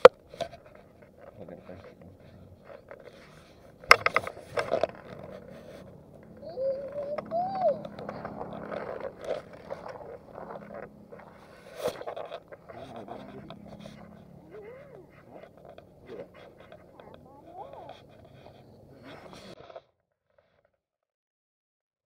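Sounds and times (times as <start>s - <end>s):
pick scraping and clicking: 2.6s - 6.4s.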